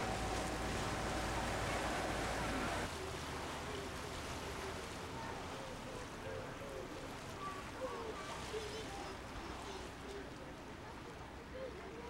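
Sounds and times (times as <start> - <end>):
boat engine droning: 0.0 - 7.2
faint distant voices: 0.0 - 12.0
water wash: 0.0 - 12.0
wind: 0.0 - 12.0.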